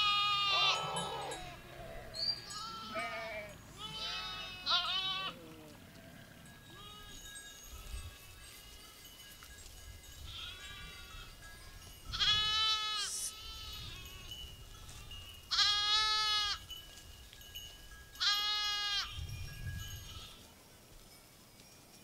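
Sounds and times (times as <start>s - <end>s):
sheep bleating: 0.0s - 7.2s, 12.2s - 14.2s, 15.5s - 16.6s, 18.2s - 19.2s.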